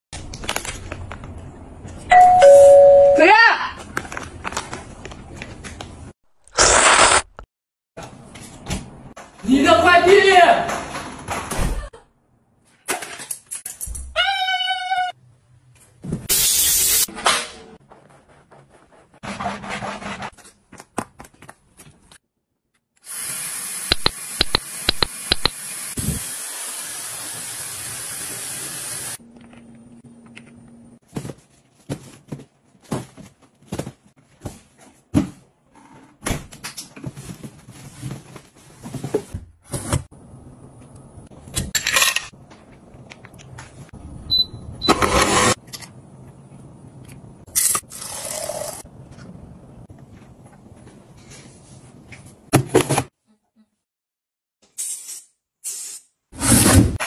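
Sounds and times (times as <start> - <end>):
spray-like hiss: 23.0 - 29.2.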